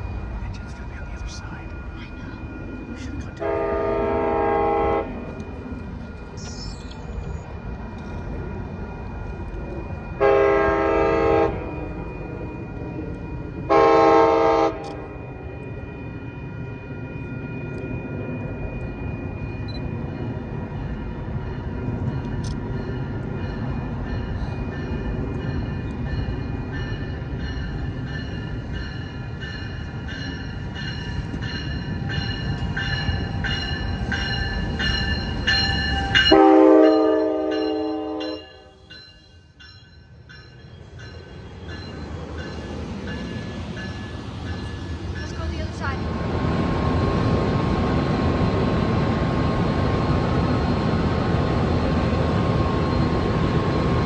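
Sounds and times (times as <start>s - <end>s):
train bell ringing: 0.0s - 54.0s
train rumble: 0.0s - 54.0s
train horn blasts: 3.4s - 5.3s, 10.2s - 12.0s, 13.7s - 15.0s, 36.0s - 38.8s.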